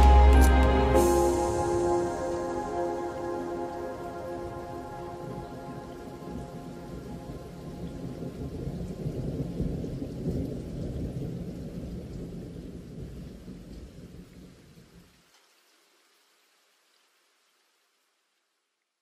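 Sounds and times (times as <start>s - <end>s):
soundtrack music: 0.0s - 7.7s
rain: 0.0s - 19.0s
rolling thunder: 1.0s - 13.3s.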